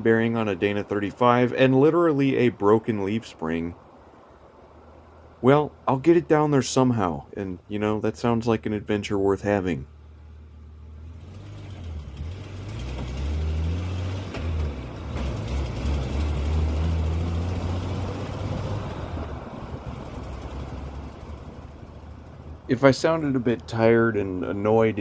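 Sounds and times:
truck engine running: 0:07.8 - 0:25.0.

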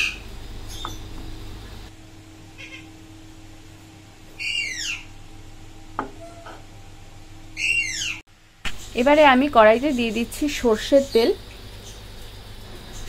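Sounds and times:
faint steady hum: 0:00.0 - 0:13.0
bird screeching call: 0:02.6 - 0:02.9, 0:04.4 - 0:05.1, 0:07.6 - 0:08.2.

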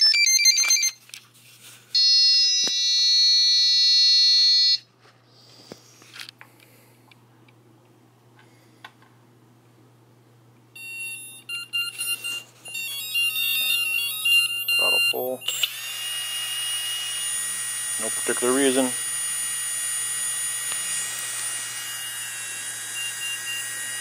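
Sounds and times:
short beeps stepping pitches: 0:10.8 - 0:15.6
steady electronic beep: 0:10.8 - 0:15.6, 0:22.9 - 0:23.8.

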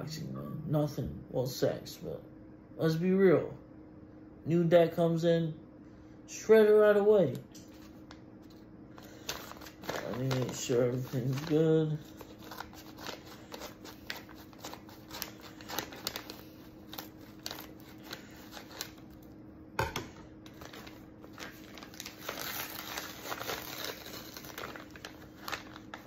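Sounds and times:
paper crinkling and rustling: 0:07.7 - 0:19.3, 0:20.4 - 0:26.0.

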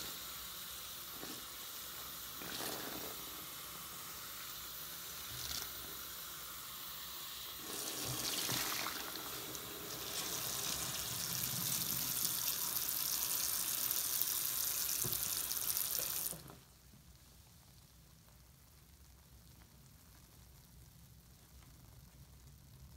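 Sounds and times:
tap water running into sink: 0:02.1 - 0:03.6, 0:07.6 - 0:16.6.

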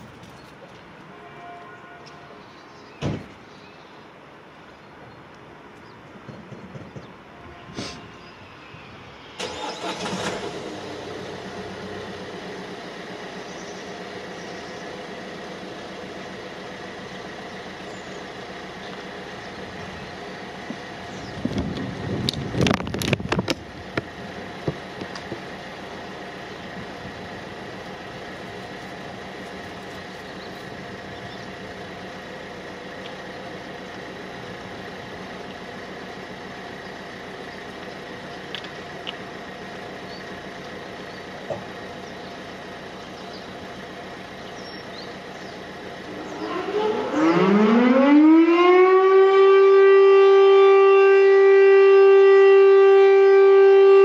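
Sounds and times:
outdoor background noise: 0:00.0 - 0:54.0
civil defence siren rising tone: 0:07.3 - 0:17.1, 0:45.7 - 0:54.0.

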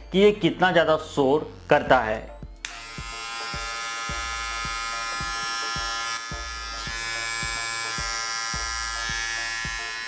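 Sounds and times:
beard trimmer motor buzz: 0:02.6 - 0:10.0.

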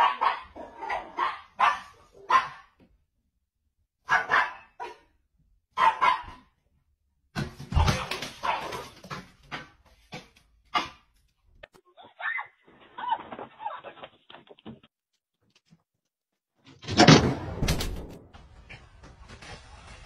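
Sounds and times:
small dog barking: 0:00.0 - 0:02.7, 0:04.1 - 0:05.1, 0:05.8 - 0:06.5.

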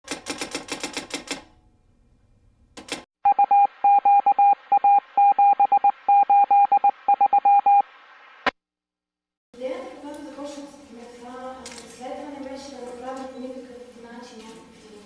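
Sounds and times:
morse code beeps: 0:03.3 - 0:07.8.

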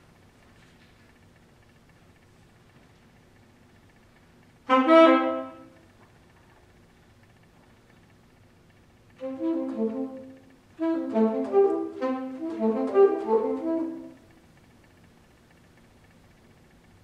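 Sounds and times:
solo saxophone: 0:04.6 - 0:05.9, 0:09.2 - 0:14.4.

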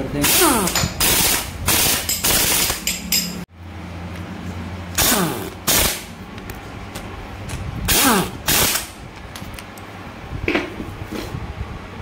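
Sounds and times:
impact wrench rattling: 0:00.2 - 0:03.4.

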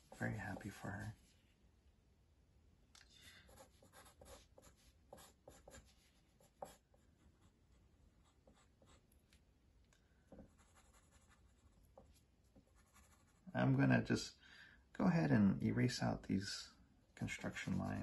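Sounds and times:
pencil scratching on paper: 0:00.0 - 0:01.2, 0:03.5 - 0:07.5, 0:08.2 - 0:09.0, 0:10.4 - 0:13.5.

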